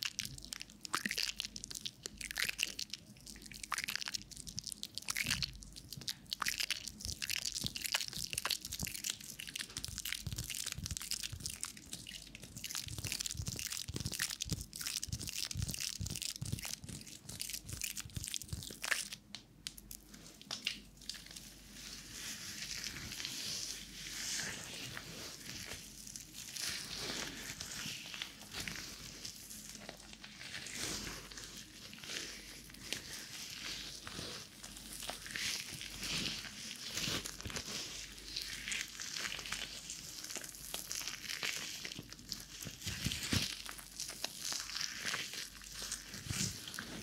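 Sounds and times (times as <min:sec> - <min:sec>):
wet soapy hands rubbing: 0:20.3 - 0:41.8.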